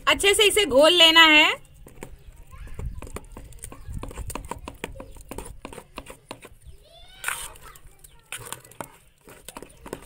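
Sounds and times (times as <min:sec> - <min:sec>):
spoon stirring in steel bowl: 0:03.0 - 0:06.7, 0:08.3 - 0:10.0.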